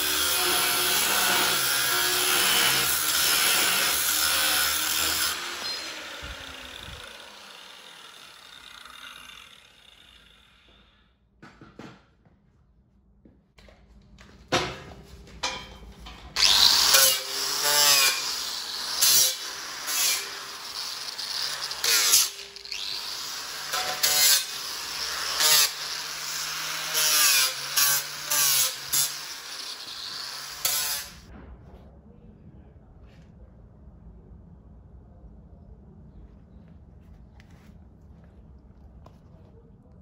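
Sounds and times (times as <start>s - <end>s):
angle grinder grinding steel: 0.0s - 10.9s, 16.4s - 31.3s.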